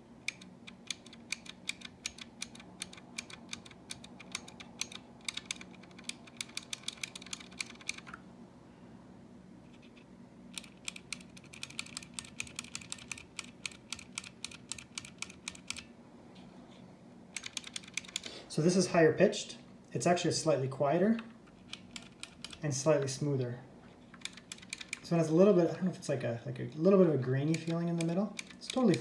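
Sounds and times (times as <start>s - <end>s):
mechanical key switches clicking: 0.2s - 8.2s, 17.4s - 18.3s, 21.2s - 22.7s, 24.2s - 25.1s, 27.4s - 29.0s.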